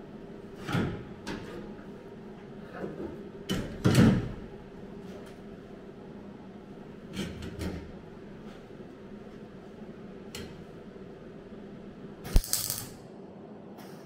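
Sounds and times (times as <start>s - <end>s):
crackling welding arc: 12.2s - 13.0s
welder hum: 12.2s - 13.0s
welding arc crack: 12.2s - 13.0s.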